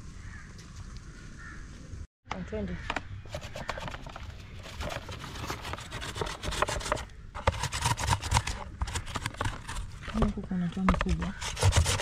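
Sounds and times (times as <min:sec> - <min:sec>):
rubbing and scraping strokes: 0:03.2 - 0:12.0.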